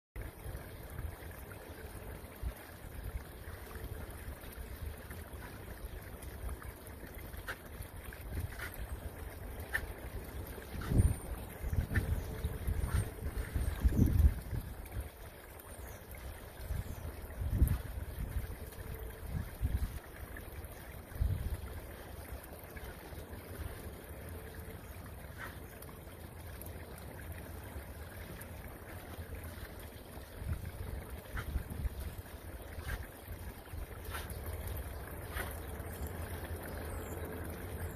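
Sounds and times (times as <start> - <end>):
wind buffeting the microphone: 10.6 - 15.1, 16.6 - 20.0, 21.1 - 21.8, 30.3 - 34.6.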